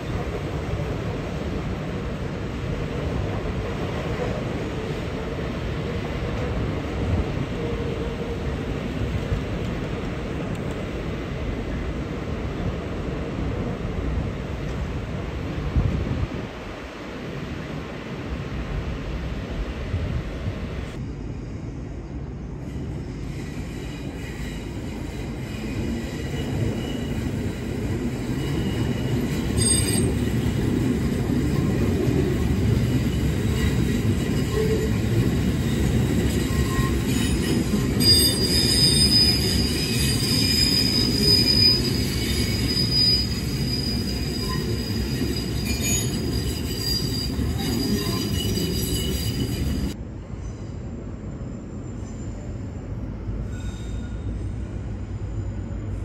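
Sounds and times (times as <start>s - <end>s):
train wheels rumbling on rails: 0.0s - 56.0s
high-pitched wheel squeal: 33.5s - 50.0s.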